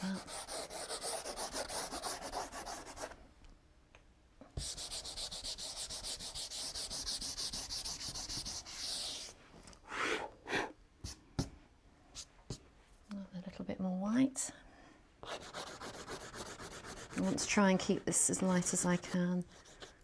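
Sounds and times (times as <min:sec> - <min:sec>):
hand rubbing pastel on paper: 0:00.0 - 0:03.2, 0:04.6 - 0:09.4, 0:15.2 - 0:20.0.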